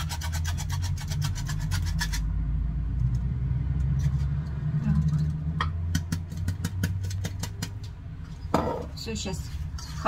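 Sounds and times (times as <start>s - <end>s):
low engine-like rumble: 2.1s - 10.0s.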